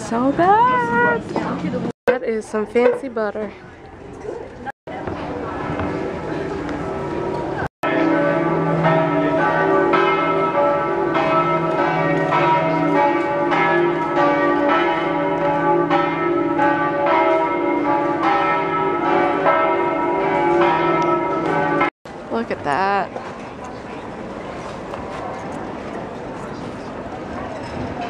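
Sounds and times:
church bells pealing: 0:06.0 - 0:21.9.

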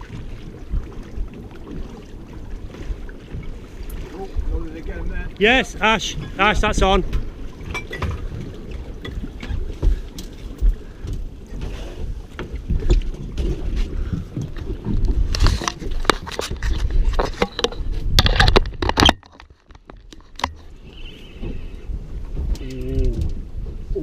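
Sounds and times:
wind buffeting microphone: 0:00.0 - 0:18.9
water lapping at boat hull: 0:00.0 - 0:24.0.

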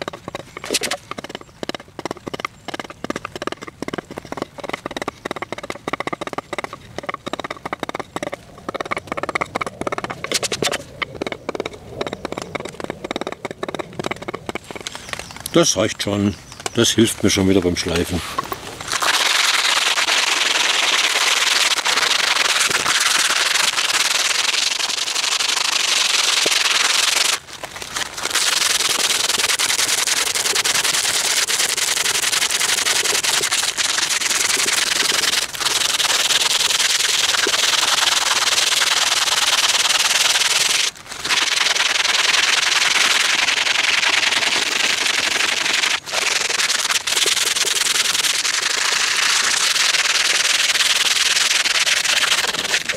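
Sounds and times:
sandpaper rubbing on wood: 0:44.4 - 0:52.9.

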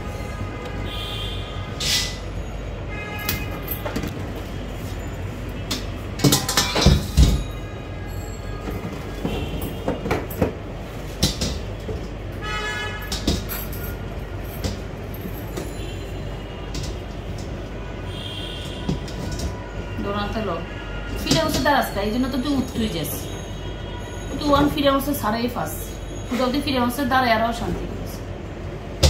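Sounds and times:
metal basket clattering in sink: 0:06.2 - 0:07.5.

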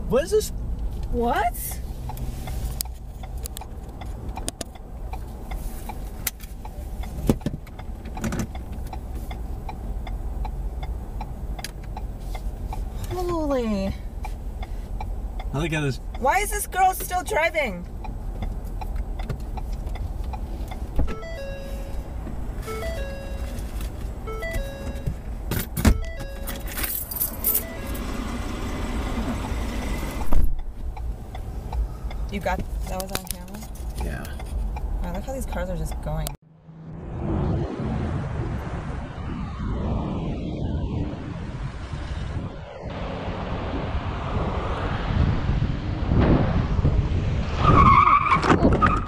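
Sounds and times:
small irregular clicks: 0:02.0 - 0:13.2, 0:17.8 - 0:21.0
car cabin rumble: 0:02.6 - 0:36.4
electronic beeping tune: 0:21.1 - 0:23.6, 0:24.2 - 0:25.2, 0:25.9 - 0:26.8, 0:27.6 - 0:28.2
rattling and jangling: 0:26.4 - 0:27.8
low rumble: 0:34.6 - 0:47.8.

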